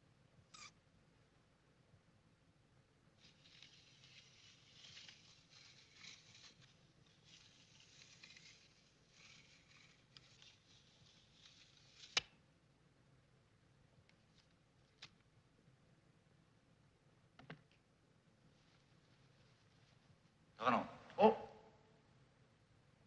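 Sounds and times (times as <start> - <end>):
faint rustling: 3.1 - 12.4, 17.6 - 21.2.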